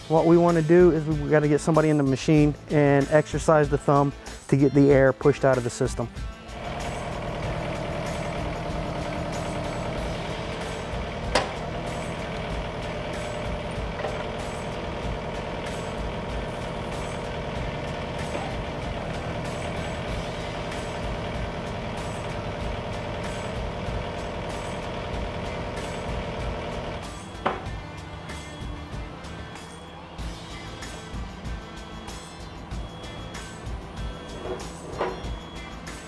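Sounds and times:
diesel engine running: 6.2s - 36.0s
hydraulic thumb cycling: 6.6s - 20.1s, 34.2s - 35.5s.

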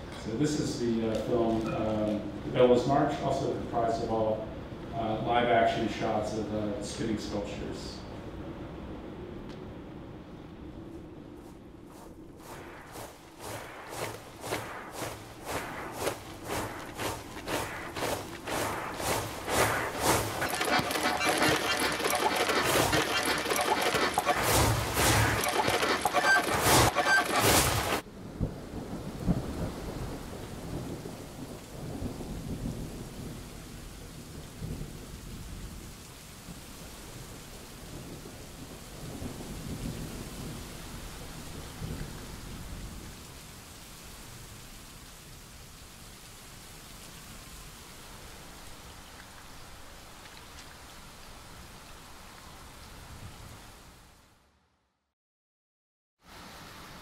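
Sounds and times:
film soundtrack over speakers: 10.4s - 28.0s.

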